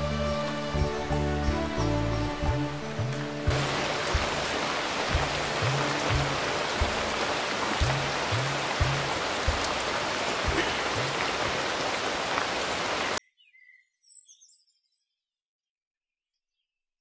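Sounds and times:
soft low notes: 0.0 - 11.9
background music with hiss: 0.0 - 13.2.

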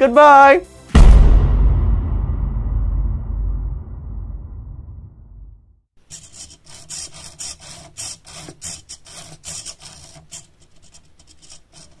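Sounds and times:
sliding parts rubbing: 6.0 - 12.0.

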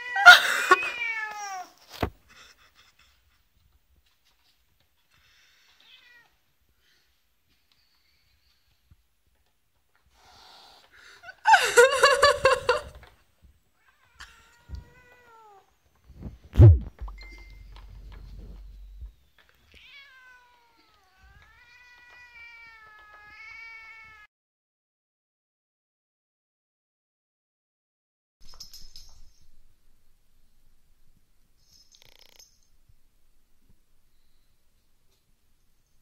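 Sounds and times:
low thump: 16.6 - 19.1
cat yowling: 19.8 - 24.3.

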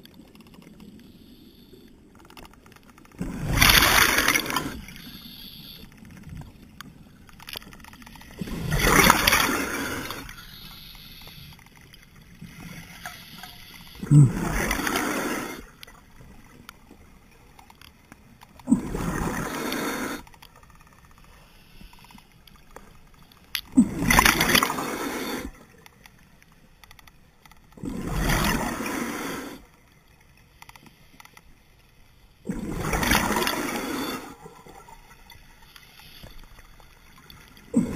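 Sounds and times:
scuba exhale bubbling: 13.4 - 15.8, 18.6 - 20.3, 23.7 - 25.7, 32.4 - 34.9, 37.6 - 37.9.

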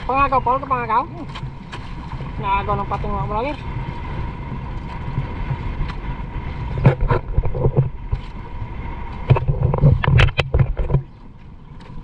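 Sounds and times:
wind buffeting microphone: 0.0 - 12.0
sharp knocks and thumps: 6.7 - 8.3, 9.2 - 11.2.

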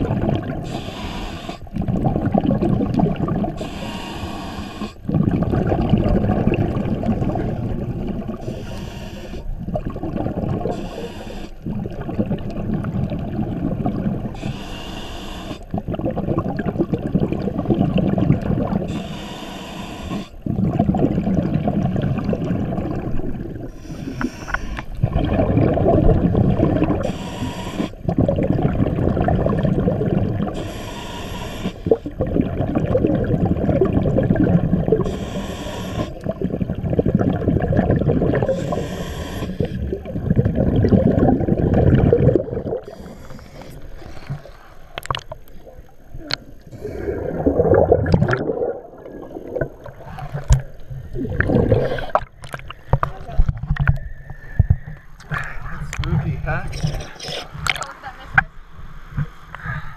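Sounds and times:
bubbling exhale underwater: 0.0 - 14.7, 15.5 - 19.1, 20.2 - 57.9
diver hissing inhale: 0.6 - 1.7, 3.6 - 5.1, 8.4 - 9.5, 10.6 - 11.6, 14.3 - 15.7, 18.9 - 20.4, 23.6 - 25.0, 27.0 - 28.1, 30.5 - 32.2, 35.0 - 36.3, 38.4 - 39.9, 42.8 - 45.0, 46.7 - 47.5.

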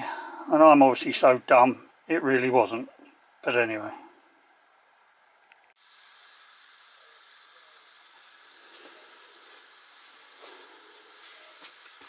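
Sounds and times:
compressed air hissing: 5.7 - 12.0.

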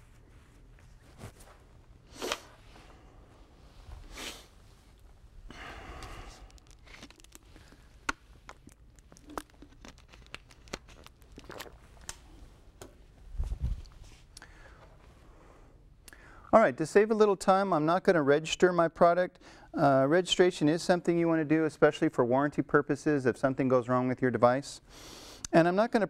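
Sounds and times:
faint rustling and handling: 0.0 - 15.3.

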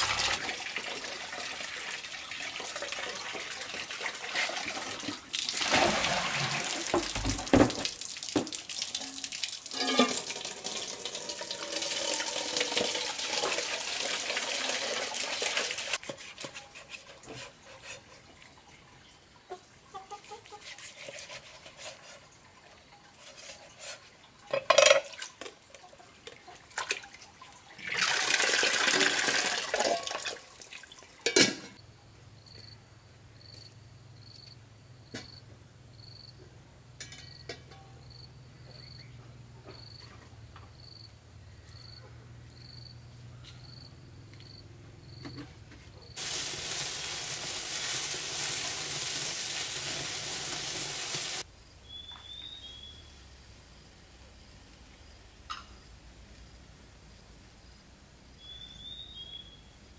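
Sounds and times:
tap water running into metal pot: 0.0 - 16.0, 27.8 - 31.5, 46.2 - 51.4
insects chirping: 31.8 - 36.4, 37.1 - 45.5.

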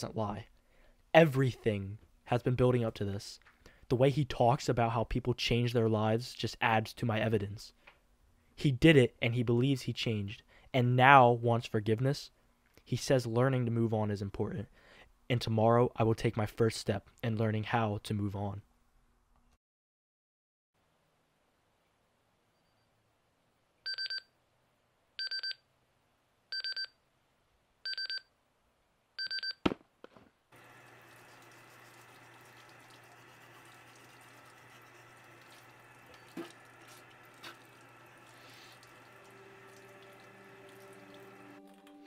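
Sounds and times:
alarm clock beeping: 23.9 - 24.2, 25.2 - 25.6, 26.6 - 26.9, 27.9 - 28.2, 29.2 - 29.6
tap running: 30.6 - 41.6.

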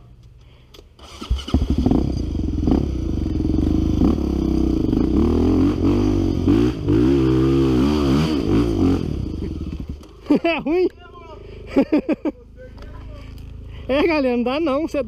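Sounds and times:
motorcycle engine revving: 1.0 - 10.4.

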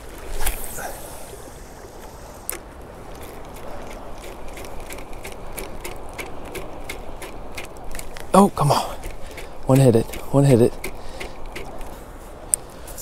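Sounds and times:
fishing reel clicking: 9.0 - 11.9.

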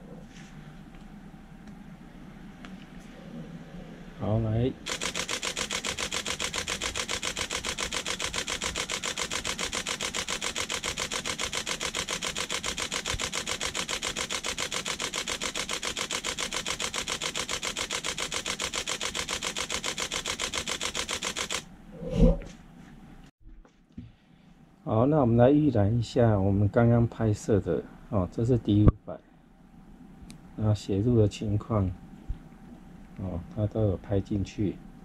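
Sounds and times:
camera shutter burst: 4.9 - 21.7.

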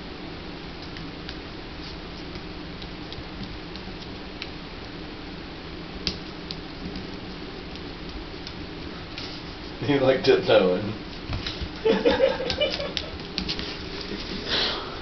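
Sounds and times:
low room hum: 0.0 - 15.0
claws clicking on tile floor: 6.1 - 8.6, 11.1 - 14.4.

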